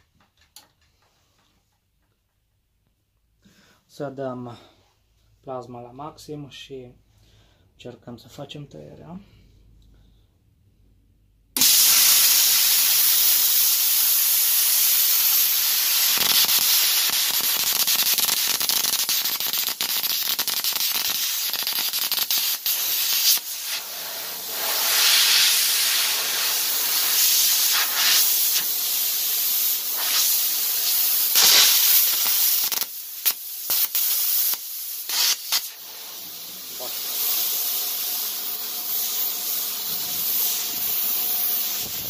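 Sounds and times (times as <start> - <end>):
plasma cutter hissing: 11.6 - 42.0.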